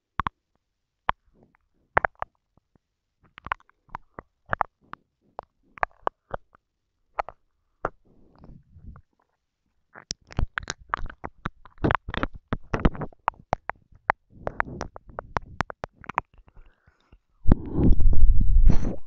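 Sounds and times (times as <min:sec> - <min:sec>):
wet mouth clicks and smacks: 0:03.2 - 0:09.1, 0:09.9 - 0:18.0.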